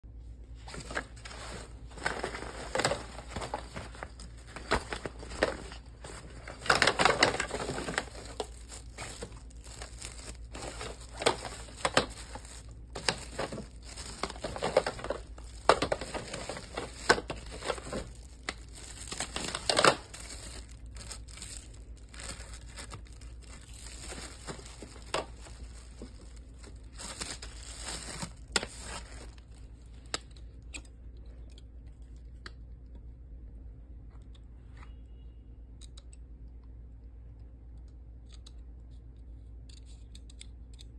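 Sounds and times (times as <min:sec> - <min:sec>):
plastic wrapping crinkling: 0:00.6 - 0:30.6.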